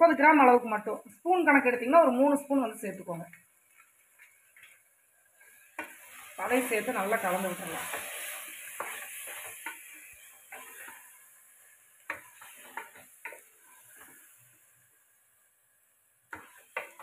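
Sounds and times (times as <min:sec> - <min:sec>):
food sizzling: 0:00.0 - 0:17.0
wooden spatula scraping a pot: 0:05.4 - 0:14.6, 0:16.3 - 0:17.0.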